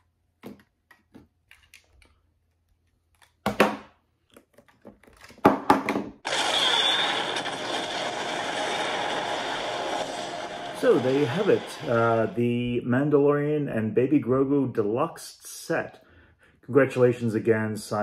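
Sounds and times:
explosion rushing noise: 6.3 - 12.4.

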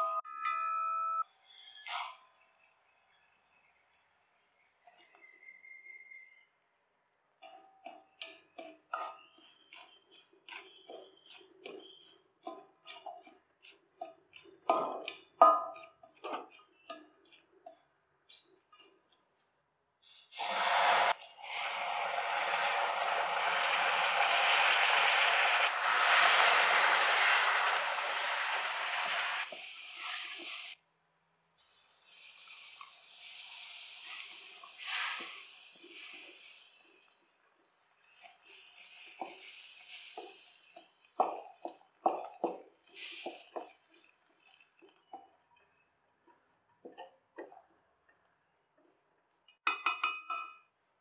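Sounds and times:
wooden spatula scraping steel bowl: 7.9 - 19.0
hiss of hot syrup pouring: 20.4 - 30.8, 32.0 - 37.2, 38.1 - 41.6, 42.9 - 43.7.

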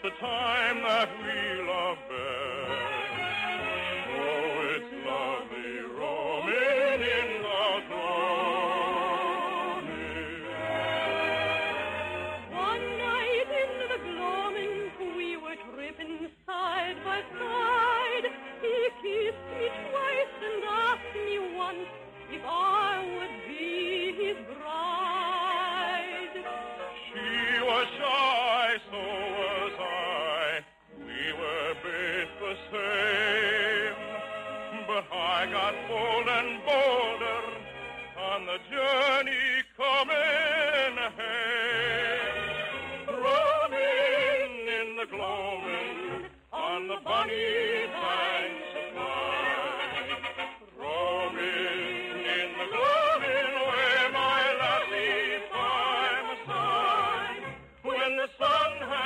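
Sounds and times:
musical accompaniment: 0.0 - 59.0
operatic singing with vibrato: 0.0 - 59.0.

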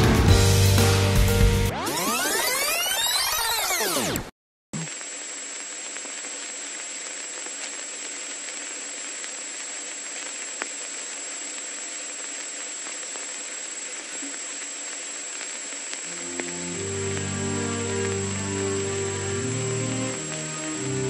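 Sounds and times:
static hiss: 4.8 - 21.0.

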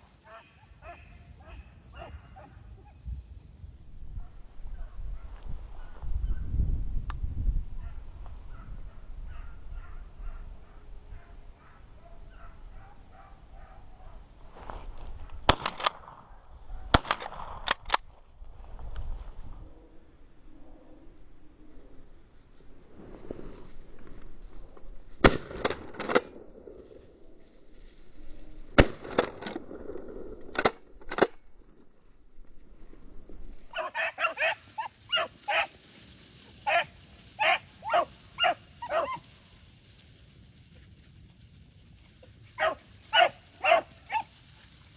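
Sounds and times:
dogs barking: 0.2 - 2.6, 7.8 - 14.2, 33.7 - 35.7, 36.6 - 39.2, 42.6 - 44.3
sharp gunshots: 15.5 - 16.2, 16.9 - 18.0
dogs baying: 33.7 - 35.7, 36.6 - 39.3, 42.6 - 44.3.

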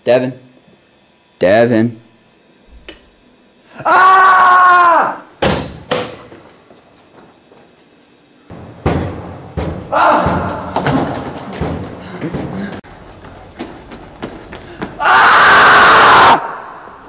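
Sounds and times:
person yelling: 3.8 - 5.3, 9.9 - 10.8.

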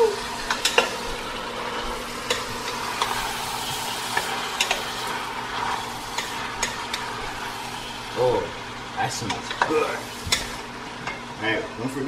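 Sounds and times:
food sizzling in oil: 0.0 - 11.4.

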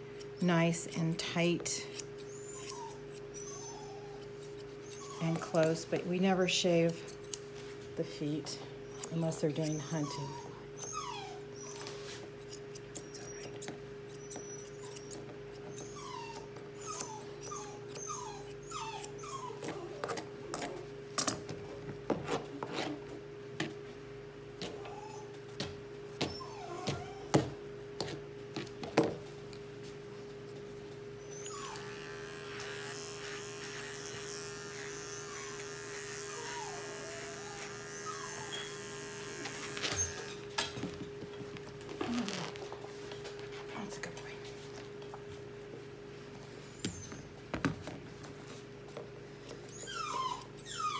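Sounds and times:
grooming scissors snipping: 0.1 - 3.5, 4.2 - 7.4, 9.0 - 10.9, 12.4 - 21.5, 31.4 - 40.8
puppy whimpering: 0.5 - 6.9, 8.8 - 12.1, 13.0 - 20.9, 24.6 - 27.6, 31.2 - 32.1, 33.7 - 40.6, 41.9 - 42.8, 46.7 - 47.4, 49.5 - 50.9
steady electric buzz: 31.8 - 40.5.

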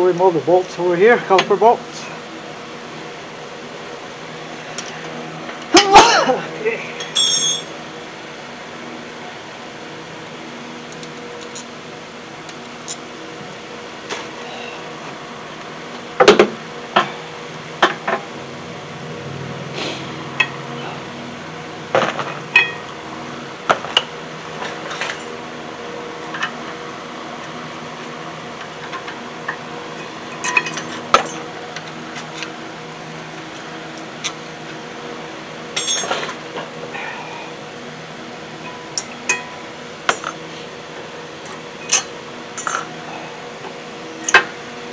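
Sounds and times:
steady background hum: 0.0 - 44.9
metal clinks and knocks: 7.0 - 7.8, 35.8 - 36.3.

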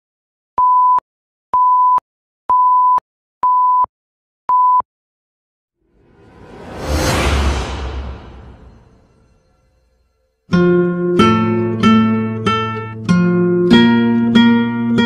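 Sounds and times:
electronic countdown beeps: 0.6 - 1.0, 1.6 - 3.9
whoosh sound effect: 5.9 - 10.2.

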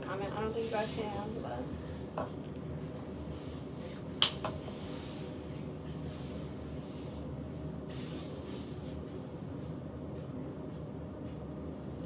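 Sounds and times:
low room hum: 0.0 - 12.0
soft rubbing: 0.1 - 9.8.

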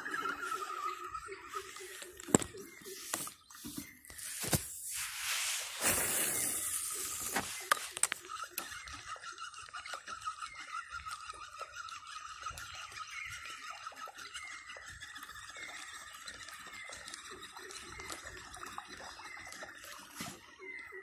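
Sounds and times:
fishing line whooshing out: 2.9 - 8.0.

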